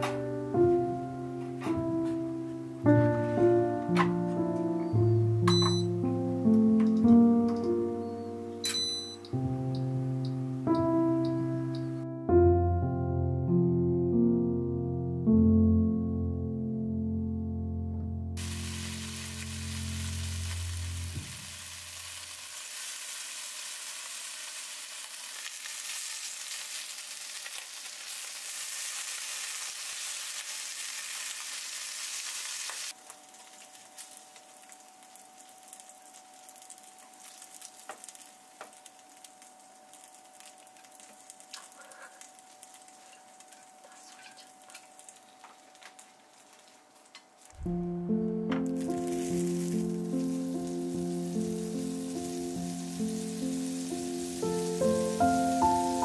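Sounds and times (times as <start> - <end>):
bacon sizzling in a frying pan: 18.4 - 43.8, 44.5 - 47.0, 48.7 - 56.0.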